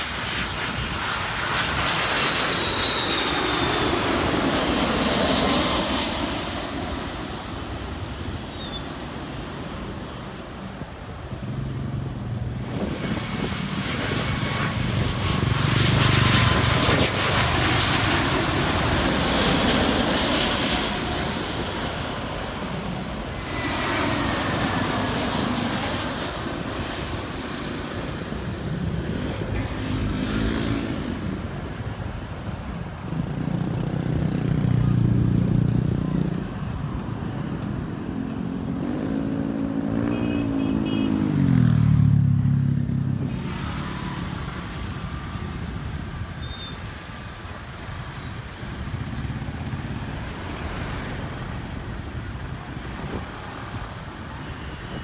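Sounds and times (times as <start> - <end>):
jet airliner passing overhead: 0.0 - 55.0
vehicles passing by: 3.1 - 55.0.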